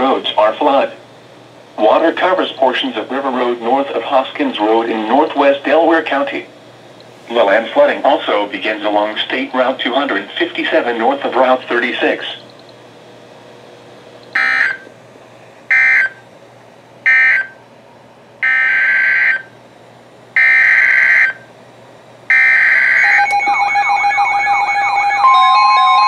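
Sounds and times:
steady beeps: 22.3 - 26.0
warbling alert tone: 22.4 - 26.0.

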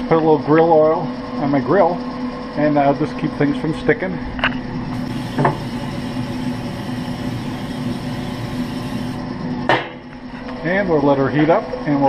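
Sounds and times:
aerosol can spraying hiss: 5.0 - 9.2.

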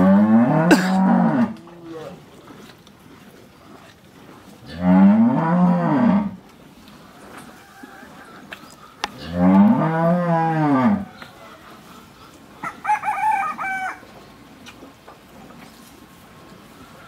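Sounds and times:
cow mooing: 0.0 - 1.6, 4.6 - 6.4, 9.2 - 11.1
rooster crowing: 12.6 - 14.0.

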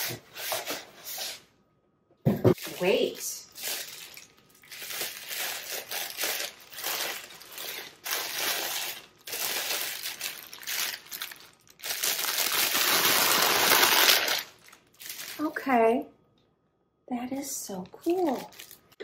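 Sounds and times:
plastic and bubble wrap crinkling: 2.5 - 15.7, 18.0 - 19.0.

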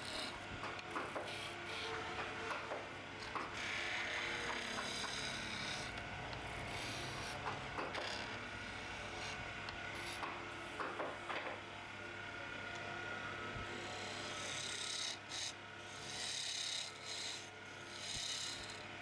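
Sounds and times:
tool scraping wood on lathe: 0.0 - 9.4, 10.0 - 10.4, 13.8 - 18.8.

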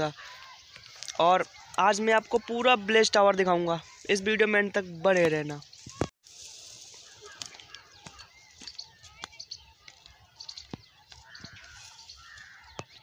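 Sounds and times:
small birds chirping: 0.0 - 13.0
bird trill: 7.0 - 13.0.

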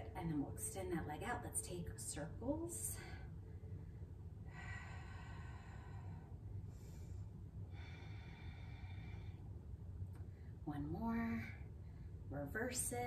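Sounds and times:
low room hum: 0.0 - 13.0
woman breathing softly: 2.8 - 10.6, 11.5 - 12.3.

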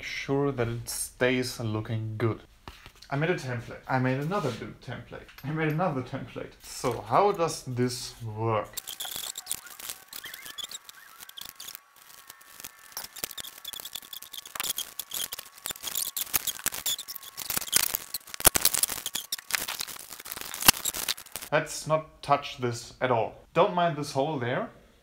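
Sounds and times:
sharp clicks: 8.8 - 21.5
small objects clicking and rustling: 8.8 - 21.5.

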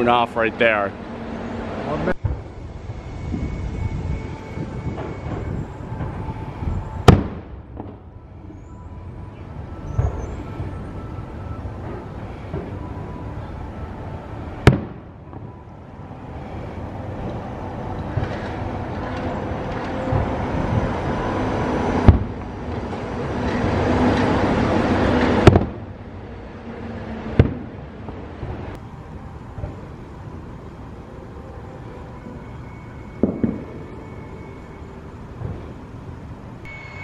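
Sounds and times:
monorail train passing: 0.0 - 37.0
sharp firework bangs: 7.0 - 8.0, 14.6 - 15.4, 22.0 - 22.4, 25.4 - 25.8, 27.4 - 27.8, 33.2 - 33.7.

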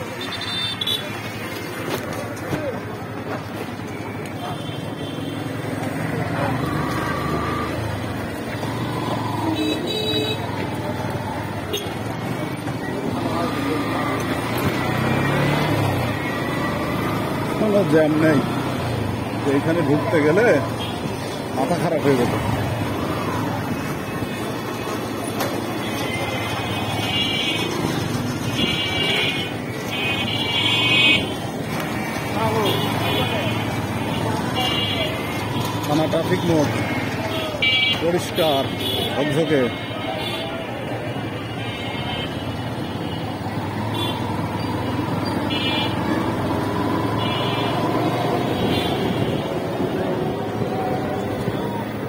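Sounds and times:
traffic: 0.0 - 52.0
motorcycle engine: 5.6 - 38.0.

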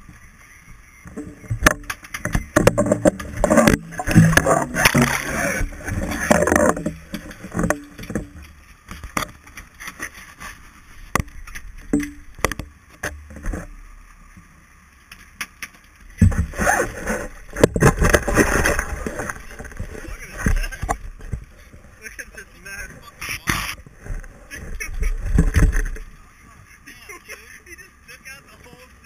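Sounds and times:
water churning and splashing: 1.1 - 10.0, 16.1 - 21.8.

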